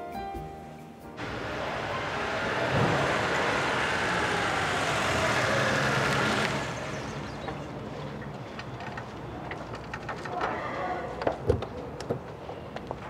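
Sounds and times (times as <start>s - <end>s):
vehicle passing by: 1.2s - 8.8s.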